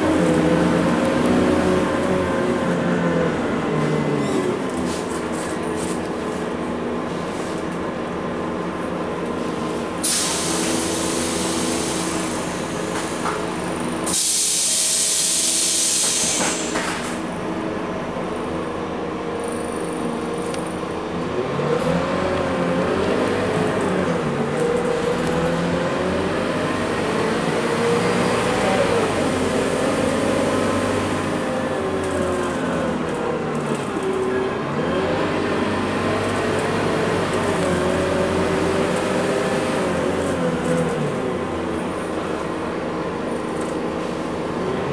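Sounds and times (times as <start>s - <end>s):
bus diesel engine: 0.0s - 44.9s
compressed air hisses: 10.0s - 12.5s, 14.1s - 16.9s.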